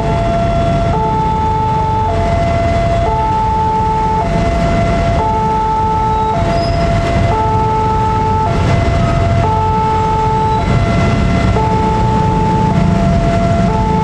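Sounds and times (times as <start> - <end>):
railroad crossing two-tone alarm: 0.0 - 14.0
road traffic rumble: 0.0 - 14.0.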